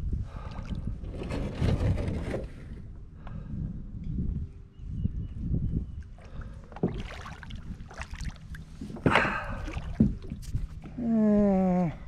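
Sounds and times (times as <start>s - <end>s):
water sloshing against hull: 6.0s - 11.0s.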